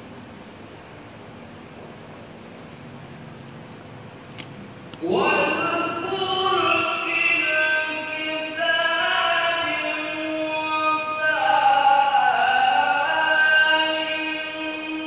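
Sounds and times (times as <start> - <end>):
man reciting melodically: 5.0 - 15.0.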